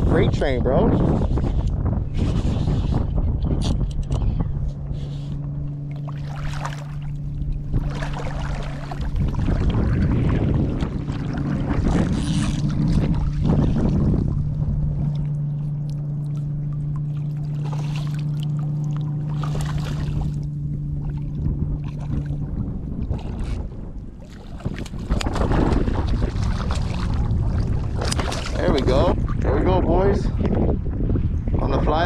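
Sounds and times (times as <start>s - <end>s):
boat motor humming: 0.0s - 32.0s
fish splashing in water: 6.0s - 7.1s, 16.2s - 20.4s, 24.3s - 28.6s.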